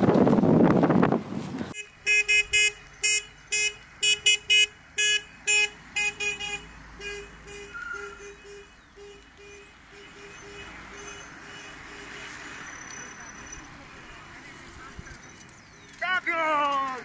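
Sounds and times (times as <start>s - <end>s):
car horn short toots: 1.8s - 12.4s.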